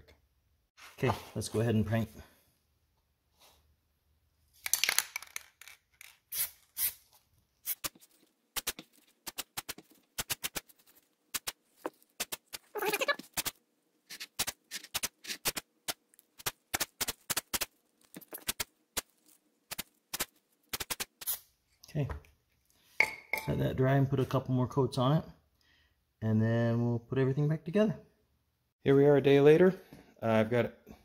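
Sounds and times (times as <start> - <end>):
spray can hissing: 7.6 - 8.0, 20.7 - 21.4.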